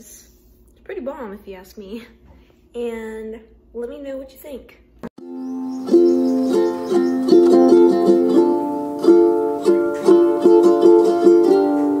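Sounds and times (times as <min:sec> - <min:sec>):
instrumental background music: 0:05.2 - 0:12.0.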